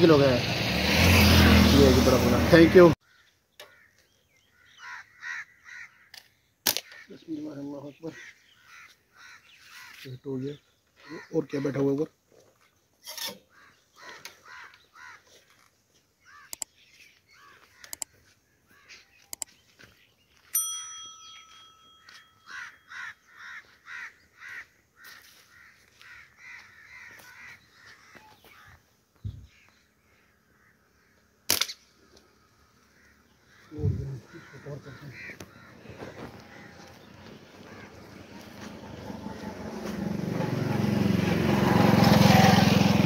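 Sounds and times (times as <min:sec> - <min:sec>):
crows cawing: 0:03.0 - 0:12.1, 0:13.4 - 0:16.7, 0:17.3 - 0:19.4, 0:22.1 - 0:40.0
sharp clicks: 0:16.5 - 0:16.7, 0:17.8 - 0:18.1, 0:19.3 - 0:19.5, 0:31.5 - 0:31.8
ringing tone: 0:20.5 - 0:22.9.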